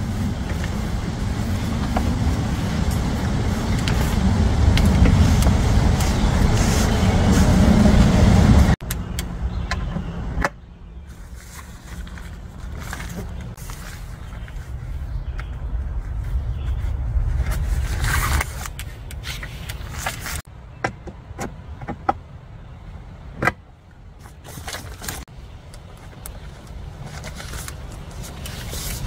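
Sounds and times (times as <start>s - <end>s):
wind rumble on microphone: 0.0s - 10.4s, 12.2s - 20.4s.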